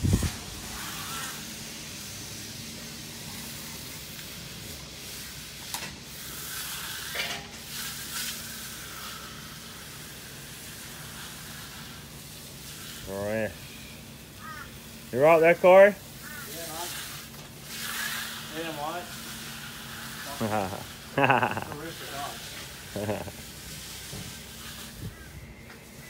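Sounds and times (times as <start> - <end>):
float swishing over wet concrete: 3.2 - 13.2, 16.2 - 26.0.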